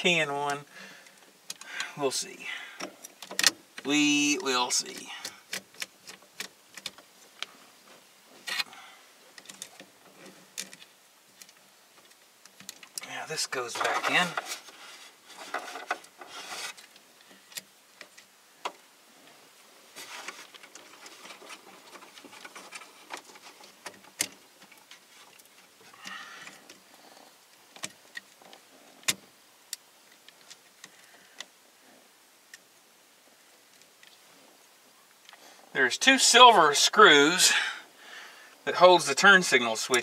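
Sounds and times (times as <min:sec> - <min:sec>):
hands clicking and tapping parts: 0:20.2 - 0:26.8.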